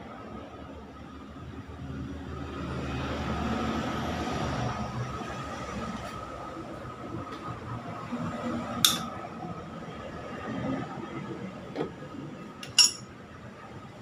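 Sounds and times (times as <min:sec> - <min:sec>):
metal tools clinking: 0:12.6 - 0:13.1.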